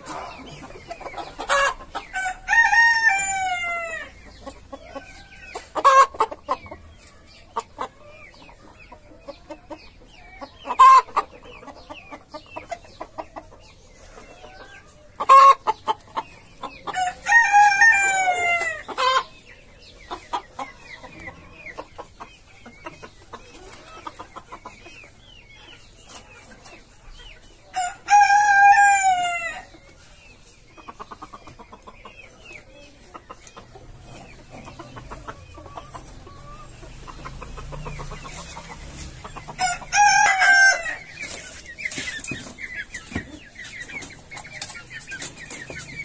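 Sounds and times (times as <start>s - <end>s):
chickens calling: 0.0s - 46.0s
soft clucking: 30.6s - 39.9s
rooster crowing: 39.6s - 41.0s.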